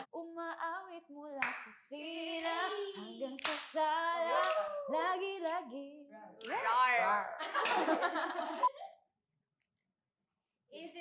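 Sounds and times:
women singing: 0:00.0 - 0:07.4, 0:10.8 - 0:11.0
hand claps: 0:01.4 - 0:01.7, 0:02.4 - 0:02.7, 0:03.4 - 0:03.7, 0:04.3 - 0:04.7.

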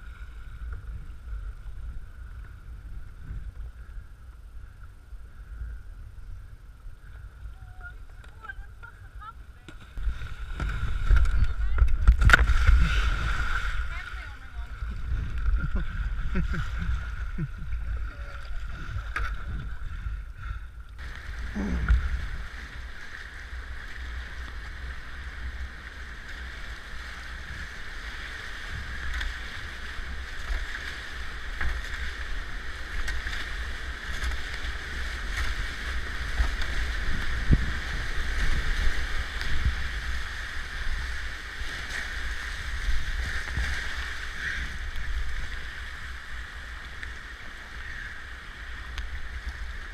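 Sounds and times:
low buffeting rumble: 0:00.0 - 0:26.8
paddle splashes: 0:06.8 - 0:49.9
whitewater rushing and splashing: 0:09.6 - 0:20.0, 0:21.0 - 0:49.9.

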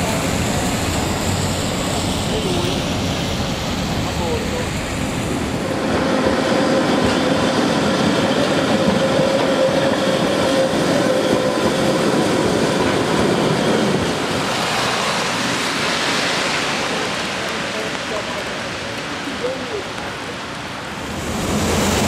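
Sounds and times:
tram wheels clattering on rails: 0:00.0 - 0:20.1.

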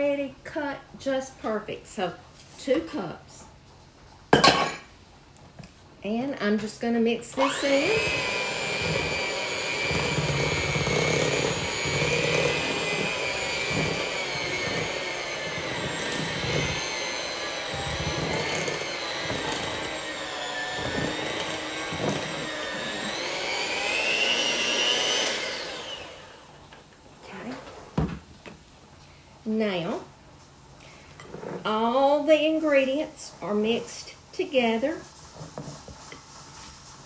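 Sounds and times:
electric hand mixer whining: 0:07.3 - 0:26.6.

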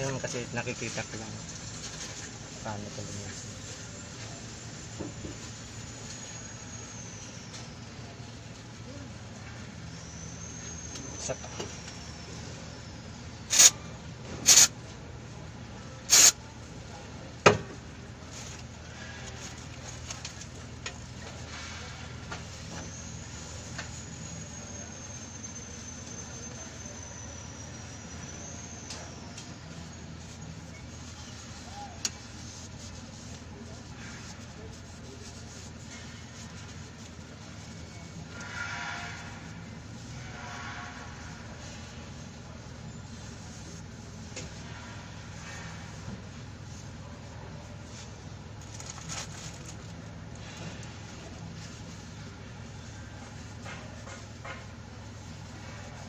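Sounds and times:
low mechanical hum: 0:00.0 - 0:56.0
hand rubbing and wiping metal: 0:13.4 - 0:13.8, 0:14.4 - 0:14.8, 0:16.0 - 0:17.0, 0:17.6 - 0:56.0
aerosol spray blasts: 0:13.5 - 0:13.8, 0:14.4 - 0:14.7, 0:16.1 - 0:16.4.

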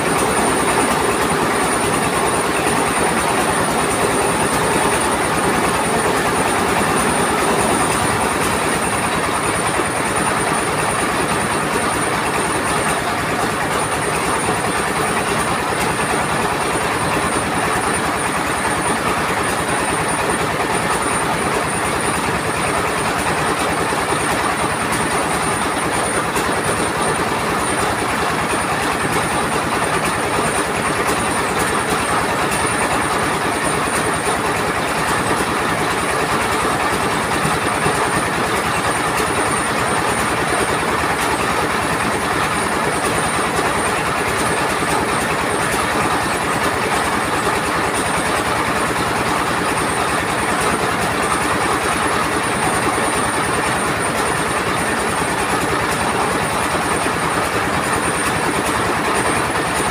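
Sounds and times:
rice mill mechanical clatter: 0:00.0 - 0:59.9.

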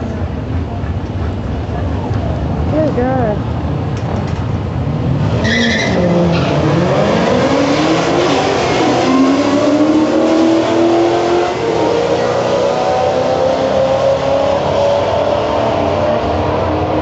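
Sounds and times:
car engine accelerating: 0:00.0 - 0:17.0
tyre squeal: 0:05.4 - 0:06.7.

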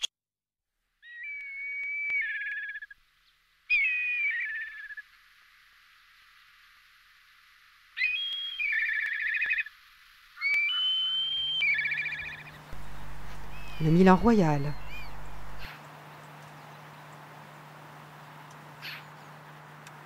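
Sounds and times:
kite calling with whistling trill: 0:01.0 - 0:03.0, 0:03.7 - 0:05.0, 0:08.0 - 0:09.8, 0:10.4 - 0:15.8.

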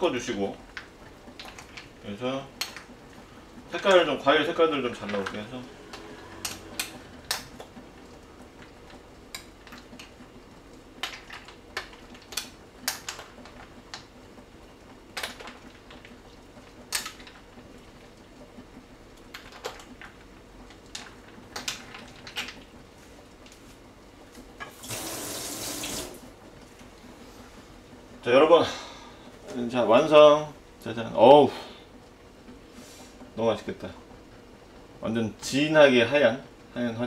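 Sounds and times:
running tap water: 0:24.6 - 0:26.3.

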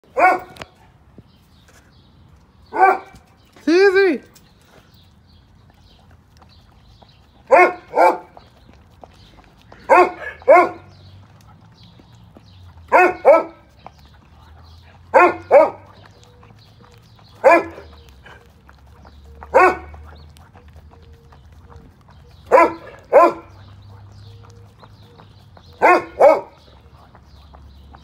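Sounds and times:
dog barking: 0:00.1 - 0:00.7, 0:02.7 - 0:03.2, 0:07.5 - 0:08.4, 0:09.9 - 0:11.0, 0:12.9 - 0:13.7, 0:15.1 - 0:16.1, 0:17.4 - 0:18.4, 0:19.4 - 0:20.0, 0:22.4 - 0:23.6, 0:25.8 - 0:26.6.

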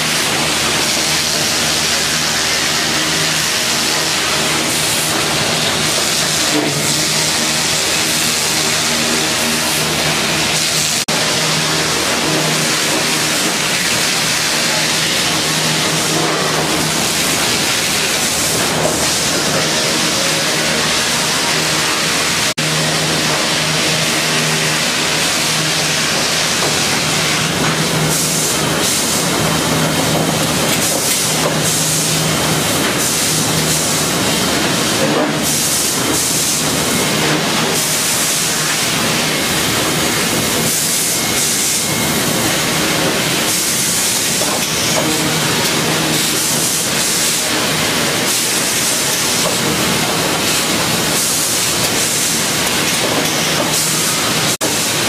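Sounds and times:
sawmill machine din: 0:00.0 - 0:55.0.

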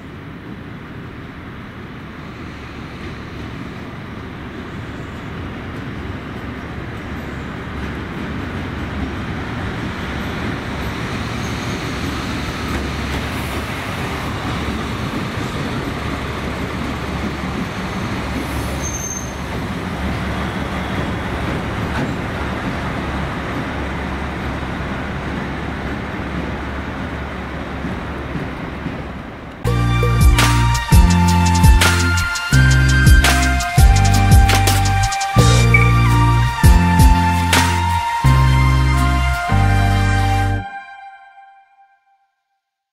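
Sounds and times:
diesel locomotive engine drone: 0:00.0 - 0:41.1
faint high squeaks: 0:18.0 - 0:19.5.

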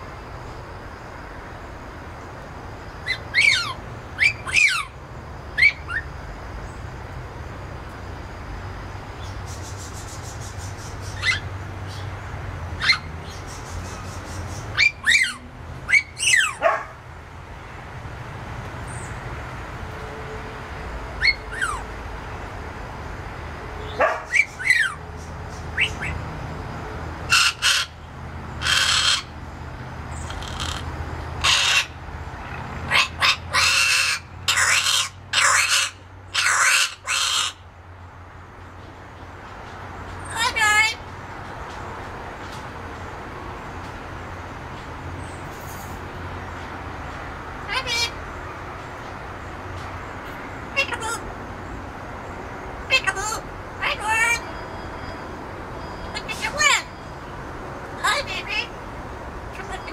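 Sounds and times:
harsh parrot calls: 0:03.0 - 0:06.1, 0:09.5 - 0:11.5, 0:12.8 - 0:16.7, 0:21.2 - 0:21.9, 0:23.8 - 0:25.0, 0:27.2 - 0:29.4, 0:30.1 - 0:37.6, 0:47.6 - 0:48.2, 0:50.7 - 0:51.3, 0:52.8 - 0:54.6.

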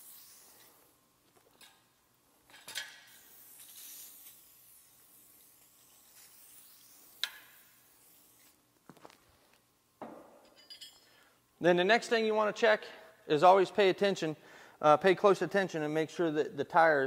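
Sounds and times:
hissing wet rubbing on tire: 0:03.1 - 0:08.6.

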